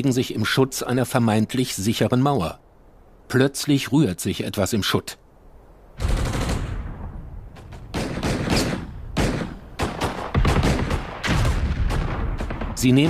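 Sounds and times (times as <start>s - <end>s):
gunshots and rapid bursts: 6.0s - 6.9s, 7.5s - 13.0s.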